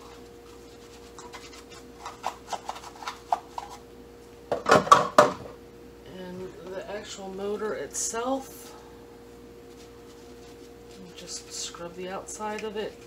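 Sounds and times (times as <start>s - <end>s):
scrub brush scraping plastic: 0.0s - 3.8s.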